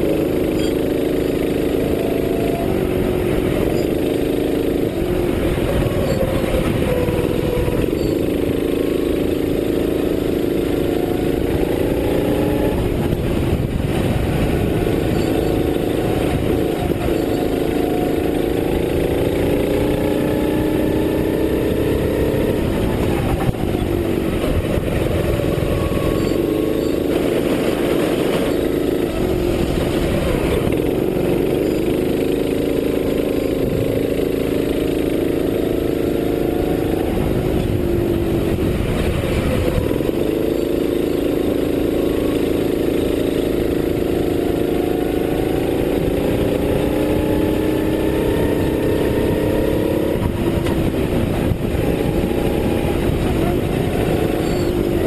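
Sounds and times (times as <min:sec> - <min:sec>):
kart engine revving: 0:00.0 - 0:55.0
wind noise on microphone: 0:00.0 - 0:55.0.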